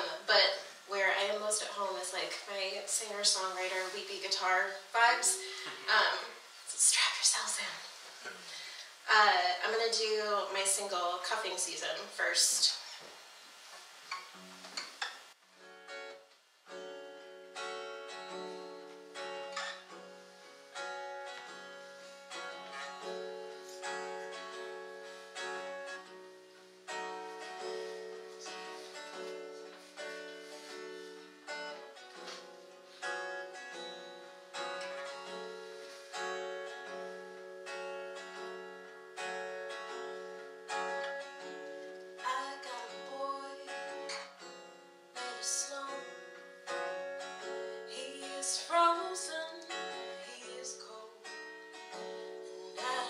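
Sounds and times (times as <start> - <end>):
woman singing: 0.0 - 7.8, 42.2 - 44.3, 45.2 - 46.2, 47.9 - 51.4, 52.7 - 53.0
acoustic guitar strumming chords: 0.0 - 8.6, 14.0 - 53.0.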